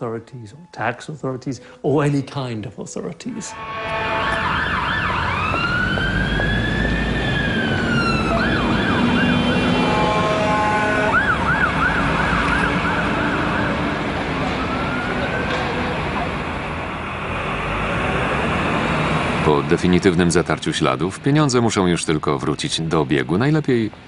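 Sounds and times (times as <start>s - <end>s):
traffic noise: 0.0s - 24.0s
emergency siren wailing: 0.3s - 2.2s, 3.5s - 19.6s.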